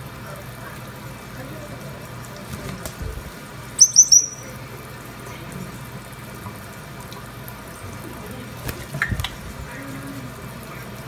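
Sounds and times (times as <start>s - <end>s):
parrot whistling: 3.8s - 4.6s
tap water running into sink: 5.4s - 9.7s.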